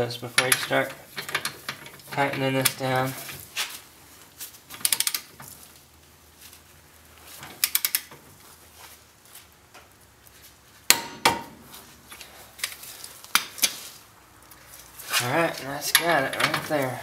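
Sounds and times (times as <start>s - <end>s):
ratchet wrench clicking: 7.6s - 8.1s.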